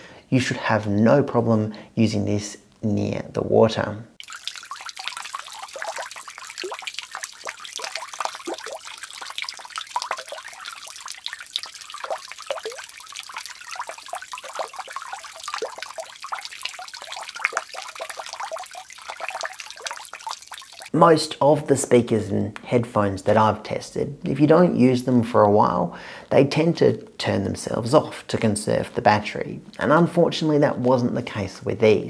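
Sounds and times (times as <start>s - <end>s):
water running from bath tap: 4.2s - 20.9s
water splashing on speaker: 4.2s - 21.0s.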